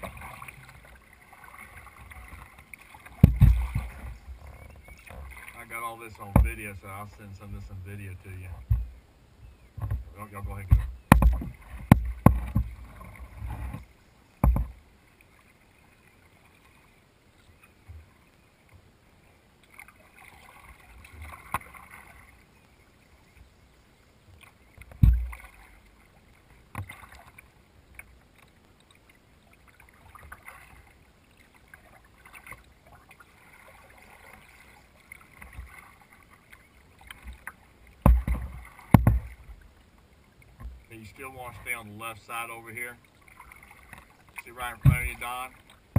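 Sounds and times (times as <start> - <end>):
paddle splashing water: 0.0 - 45.9
dull thumps against kayak: 3.1 - 5.4, 6.2 - 6.7, 8.5 - 9.0, 9.8 - 14.8, 24.8 - 25.5, 38.0 - 39.5, 44.6 - 45.3.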